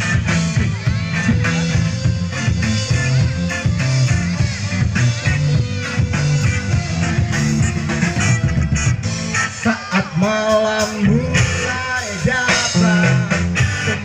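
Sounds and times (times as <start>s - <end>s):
rock band playing: 0.0s - 14.0s
person singing long notes: 9.4s - 14.0s.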